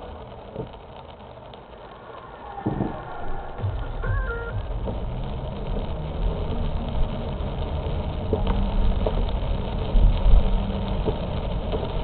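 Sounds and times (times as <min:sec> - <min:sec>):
car engine and tyres rumbling: 0:00.0 - 0:12.0
faint ticks: 0:04.0 - 0:12.0.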